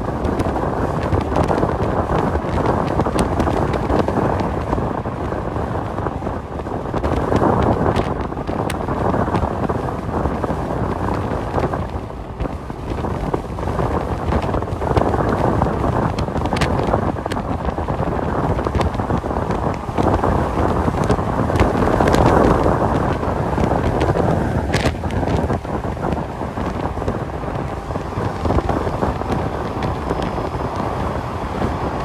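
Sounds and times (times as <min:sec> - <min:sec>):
truck road and engine noise: 0:00.0 - 0:32.0.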